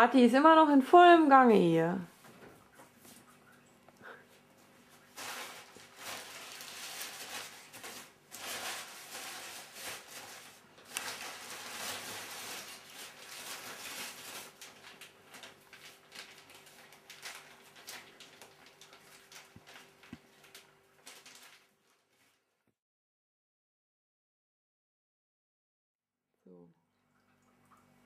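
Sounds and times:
food preparation rustling: 2.1 - 22.6.

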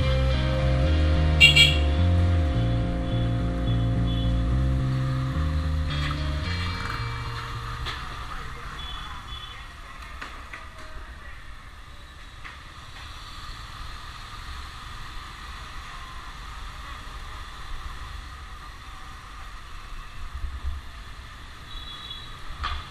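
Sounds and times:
road rumble: 0.0 - 22.9
motorbike engine: 3.1 - 9.4.

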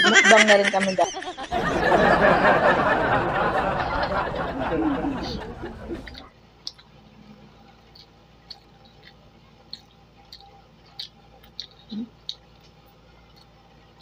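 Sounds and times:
people chewing and eating: 1.5 - 14.0
lip smacks: 5.2 - 14.0.

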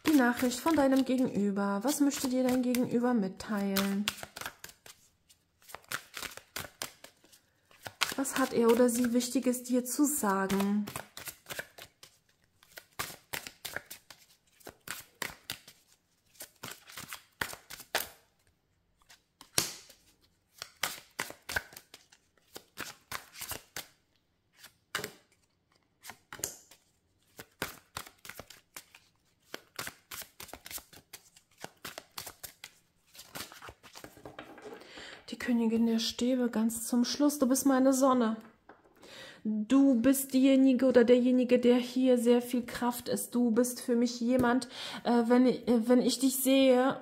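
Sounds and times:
cards shuffling: 0.0 - 9.3, 10.4 - 35.2
card flicks slaps and rustles: 3.8 - 5.0, 5.6 - 9.1, 10.5 - 15.8, 16.4 - 18.2, 19.1 - 24.0, 24.6 - 25.4, 26.0 - 34.7.

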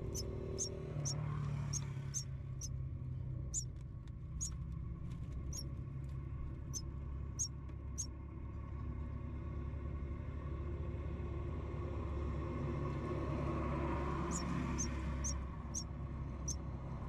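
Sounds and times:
nestlings cheeping: 0.0 - 2.2, 14.2 - 15.8.

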